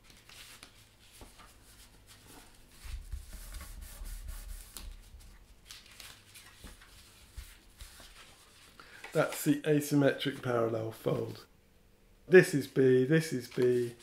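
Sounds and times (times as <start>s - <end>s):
card sheets rustling: 4.6s - 9.6s, 13.2s - 14.0s.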